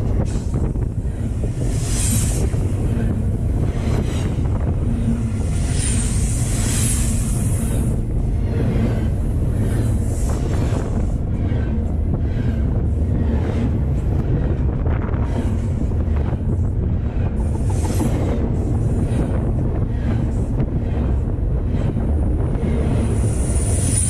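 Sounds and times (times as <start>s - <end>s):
steel wheels rumbling on track: 0.0s - 24.0s
wind on microphone: 0.0s - 24.0s.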